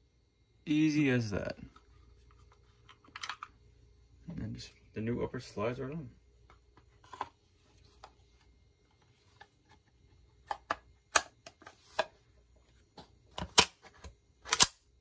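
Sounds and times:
pistol parts clicking and knocking: 14.4 - 14.8.

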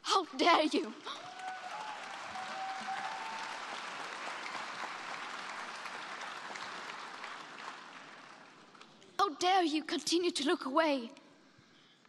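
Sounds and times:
audience applauding: 0.9 - 9.0.

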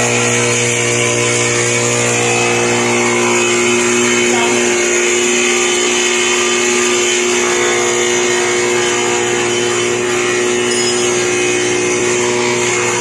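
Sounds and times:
wood planer running: 0.0 - 13.0.

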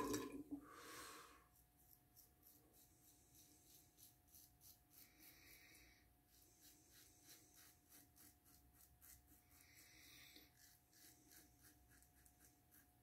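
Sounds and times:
razor scratching stubble: 1.8 - 5.6, 6.3 - 9.6, 10.3 - 13.0.

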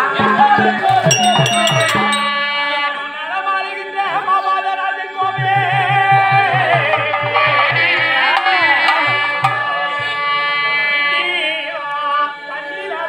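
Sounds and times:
hand-drum strokes: 0.8 - 2.7
held accompanying notes: 0.8 - 3.0
person singing wavering melody: 0.9 - 2.8
small cymbal strikes: 0.9 - 2.8.

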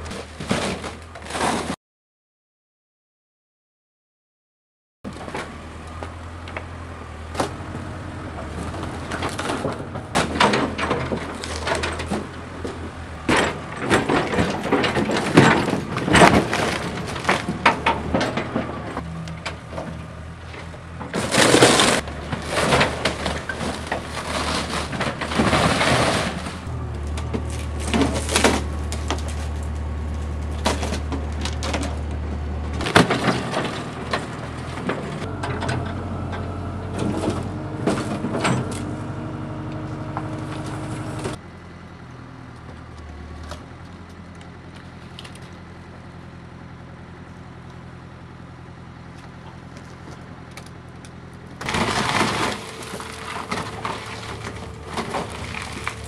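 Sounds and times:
excavator diesel engine drone: 5.1 - 56.0
boat hull cracking and splintering: 51.6 - 56.0.

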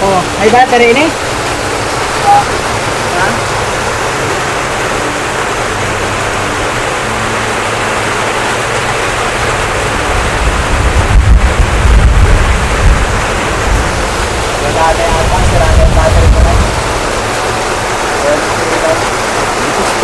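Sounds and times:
heavy rain hissing: 0.0 - 20.0
wind buffeting microphone: 8.6 - 20.0.

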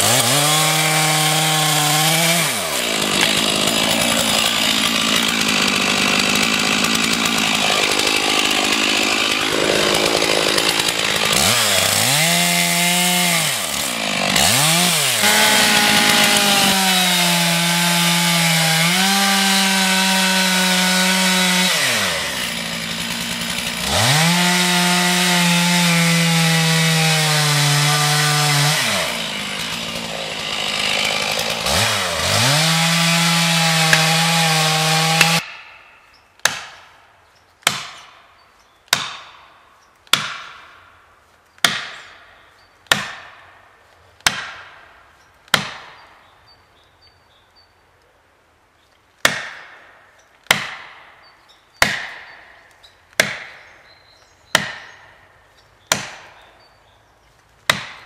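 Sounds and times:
chainsaw cutting wood: 0.0 - 37.0, 37.6 - 46.1, 49.2 - 58.0
ringing blows on felling wedge: 0.0 - 46.3.

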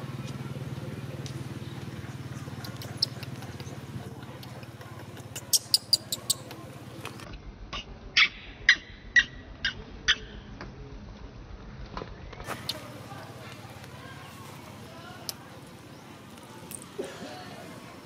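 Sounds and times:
baby monkey squeaking: 2.3 - 3.9, 5.1 - 6.6, 7.8 - 10.4.

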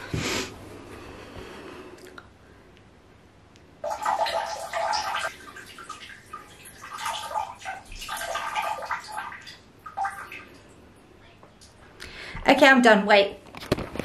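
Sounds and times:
toilet flushing: 3.8 - 10.6.

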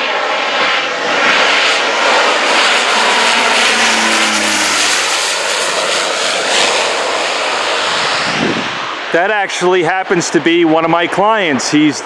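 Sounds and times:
propeller plane flying overhead: 0.0 - 12.0.

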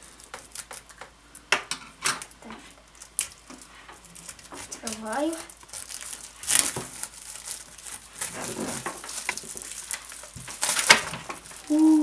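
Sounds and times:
cardboard and plastic rustling: 2.4 - 12.0.

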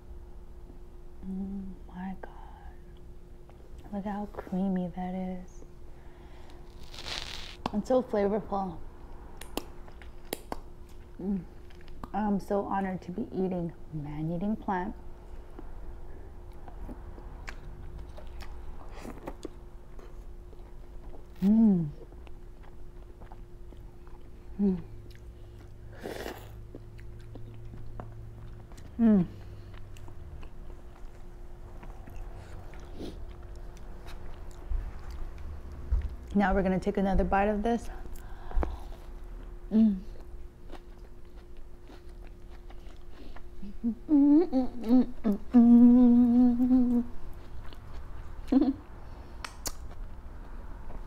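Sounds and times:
person humming mm: 1.2 - 2.7, 11.2 - 11.6, 21.4 - 22.1, 24.5 - 25.1, 29.0 - 29.6, 39.7 - 40.3, 43.6 - 47.2, 48.5 - 48.8
person chewing noodles: 16.4 - 36.3, 38.1 - 43.8, 46.2 - 51.0.

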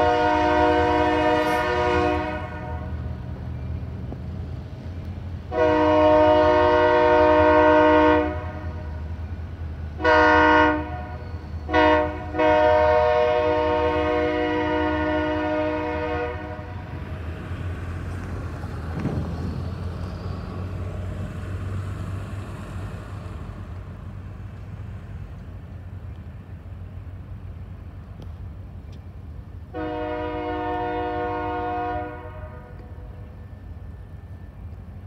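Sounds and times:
train air horn blast: 0.0 - 3.1, 5.5 - 9.1, 10.0 - 17.0, 29.7 - 33.2
diesel locomotive engine drone: 0.0 - 35.0.

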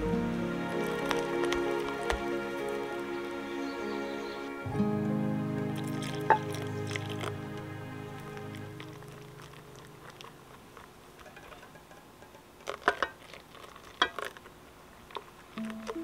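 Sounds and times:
background music: 0.0 - 9.9
whisk stirring liquid: 8.2 - 14.5.

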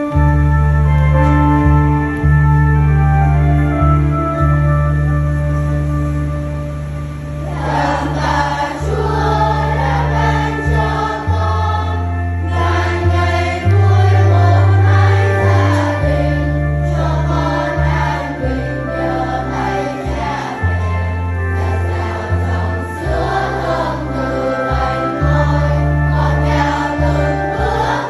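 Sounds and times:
electronic organ playing hymn: 0.0 - 28.0
choir singing: 7.4 - 28.0.

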